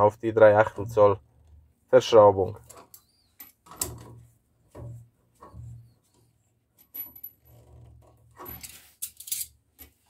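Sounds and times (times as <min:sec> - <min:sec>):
metal tools clinking and rattling: 0:08.4 - 0:10.0.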